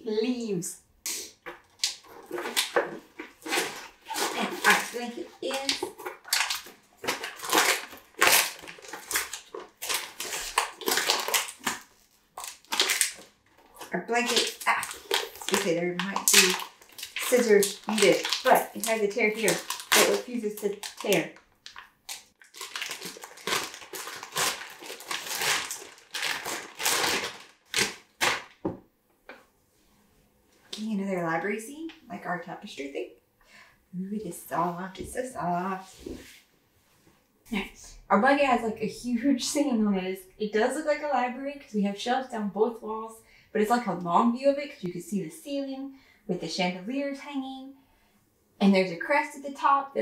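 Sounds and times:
plastic packaging crinkling: 1.5s - 28.6s.

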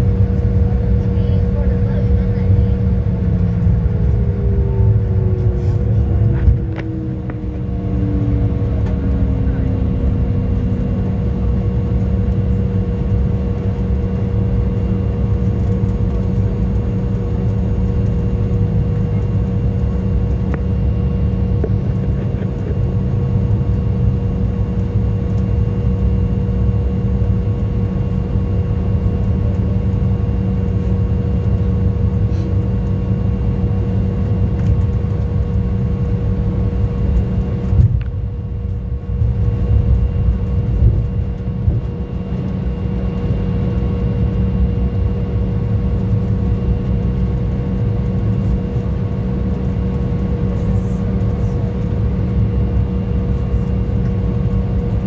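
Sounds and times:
airliner engines rumbling: 0.0s - 55.0s
whining tones: 2.9s - 13.2s.

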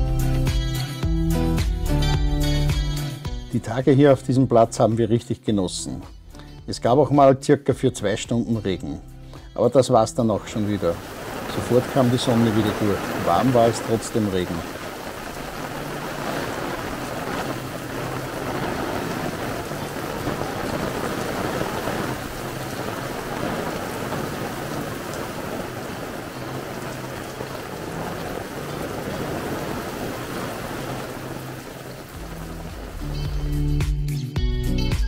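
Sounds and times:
steady rain falling: 10.3s - 33.8s.

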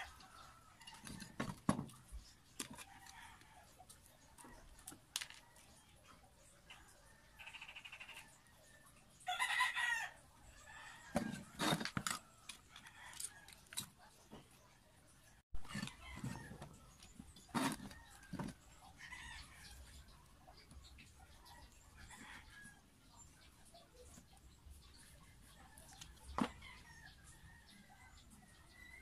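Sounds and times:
rooster crowing: 9.3s - 11.4s.

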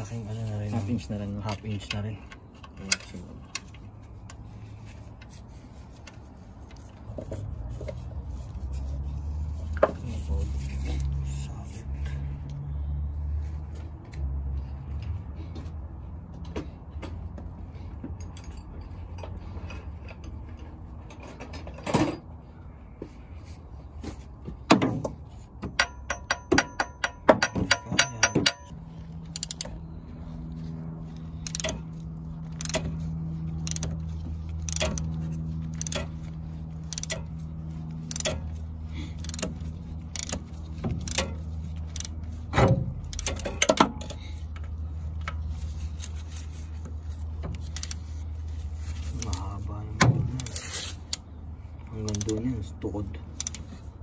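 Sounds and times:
ratchet wrench clicking: 25.7s - 29.8s, 31.0s - 44.4s, 47.1s - 48.3s, 49.0s - 49.5s, 50.2s - 52.5s, 53.3s - 53.9s.

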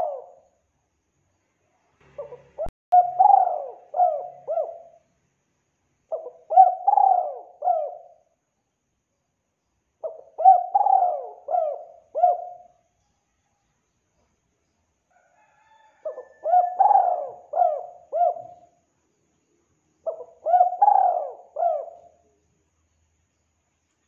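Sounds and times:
dove cooing: 0.0s - 0.4s, 2.1s - 5.0s, 6.1s - 8.2s, 10.0s - 12.8s, 16.0s - 18.8s, 20.0s - 22.2s.

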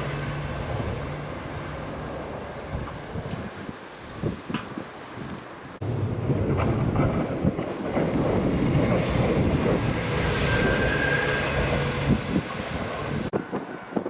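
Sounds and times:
high wheel squeal: 0.0s - 2.9s, 9.0s - 13.9s
train wheels rumbling on rails: 0.0s - 14.0s.

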